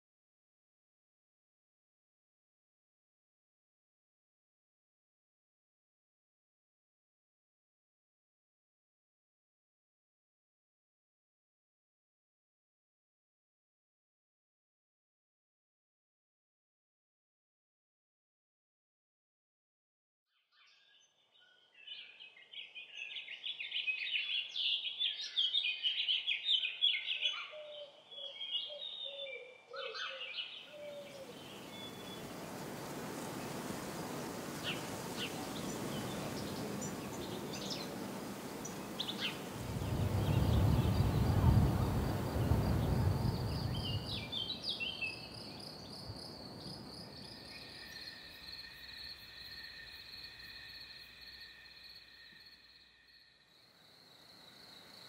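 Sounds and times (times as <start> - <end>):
birds chirping: 22.0 - 48.9
crickets chirping: 30.8 - 55.0
deep rushing rumble: 38.8 - 44.6.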